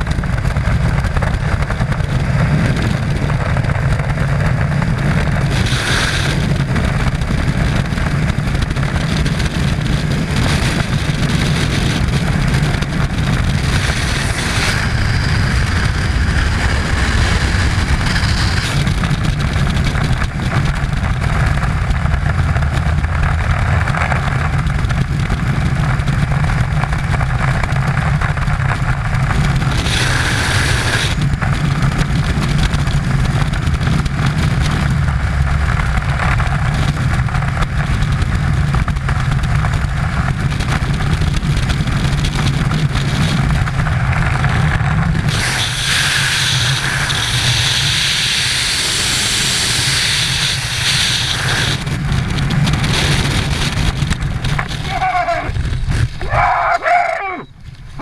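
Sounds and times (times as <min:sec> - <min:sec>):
freefall wind buffeting microphone: 0:00.0 - 0:58.0.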